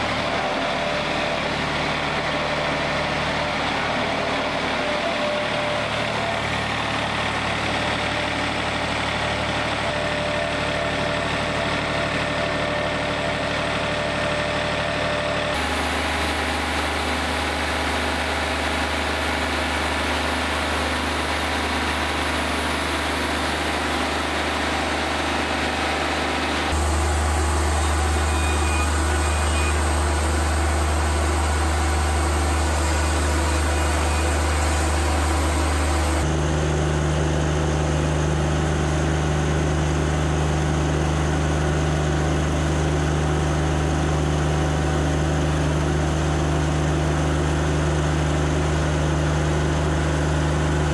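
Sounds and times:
sawmill engine running: 0.0 - 50.9
band saw cutting log: 15.6 - 36.3.

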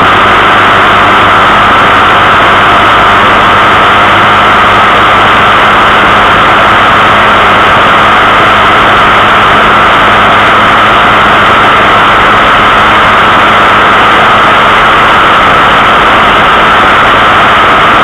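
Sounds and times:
rushing air: 0.0 - 18.0
vehicle drive noise: 0.0 - 18.0.

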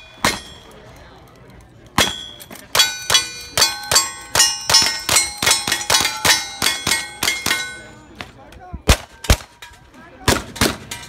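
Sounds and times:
steel plates ringing from hits: 0.0 - 1.0, 2.0 - 8.2.

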